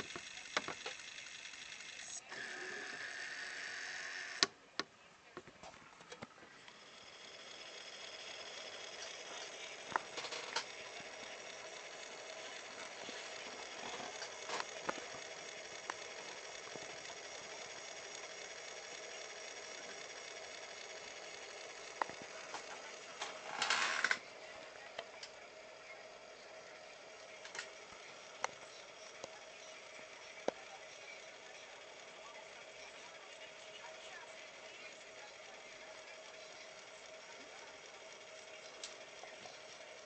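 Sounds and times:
cd player disc whirring: 0.0 - 40.0.

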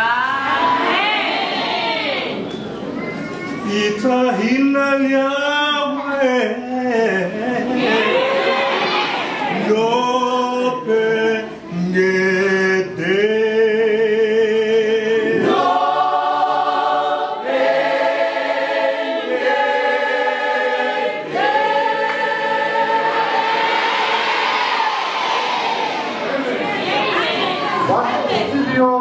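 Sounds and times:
choir singing a cappella: 6.4 - 27.4.

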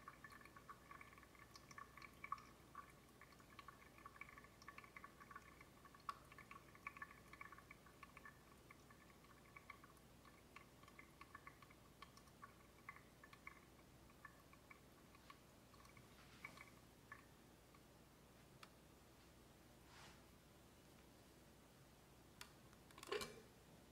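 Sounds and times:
coffee dripping into coffee: 0.0 - 17.9.

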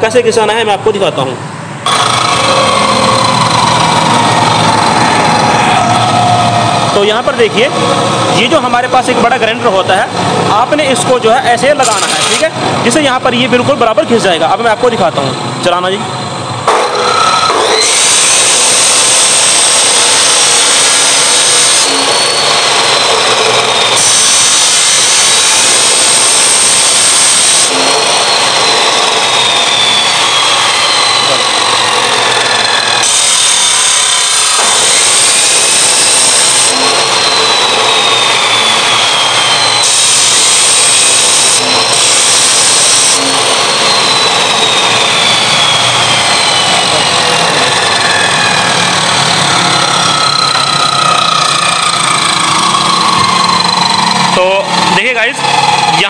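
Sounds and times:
abrasive cut-off wheel running: 0.0 - 56.0
harsh high grinding hiss: 17.8 - 52.4.

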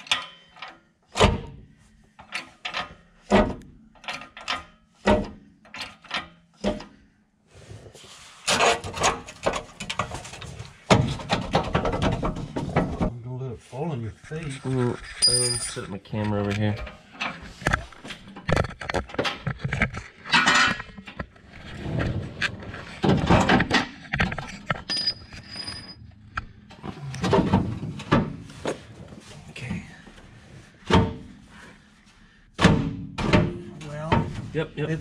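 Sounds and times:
tools and metal parts clinking: 0.0 - 0.9, 2.2 - 6.9, 15.1 - 15.9, 16.8 - 21.2
camera bumps and rubbing: 17.4 - 21.4.

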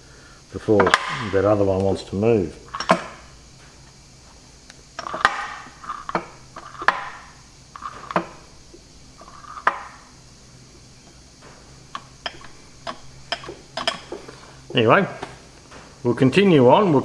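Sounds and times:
gearbox metal clunks: 0.8 - 1.3, 2.6 - 3.2, 11.9 - 14.4.

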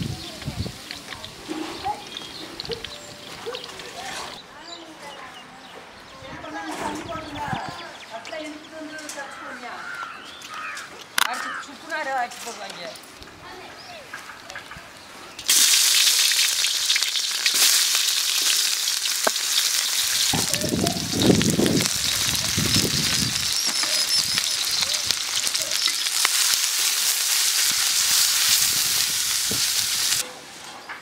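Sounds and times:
food sizzling in hot oil: 0.0 - 4.4, 15.4 - 30.2.

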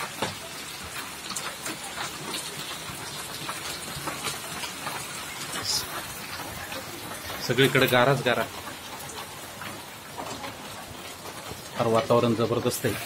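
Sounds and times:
hail and rain falling: 0.0 - 13.0
hailstones striking a motorcycle: 0.0 - 13.0.

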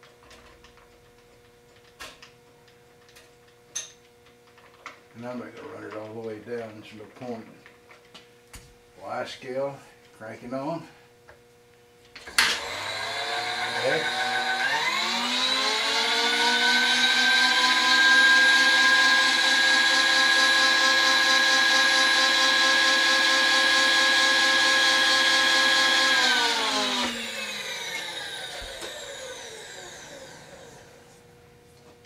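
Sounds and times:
mill motor whining: 12.2 - 31.3
motor winding down: 12.3 - 31.2.

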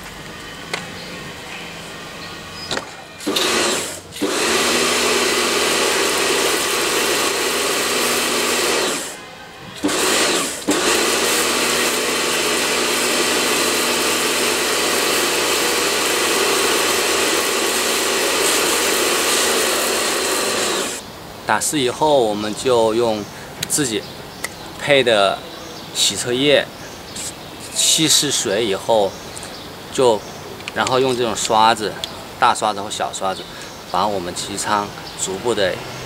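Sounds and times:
pressure washer motor humming: 2.1 - 21.0
water spraying: 3.2 - 9.2, 9.8 - 21.0.

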